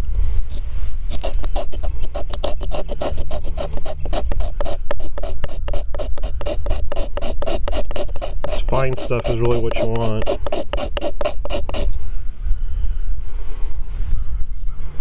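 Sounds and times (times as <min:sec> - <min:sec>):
knife scraping wooden stick: 0:01.1 - 0:11.9.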